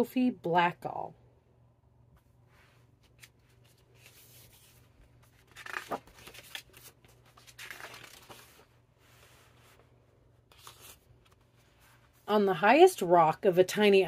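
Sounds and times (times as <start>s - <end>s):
book pages turning: 2.2s - 12.2s.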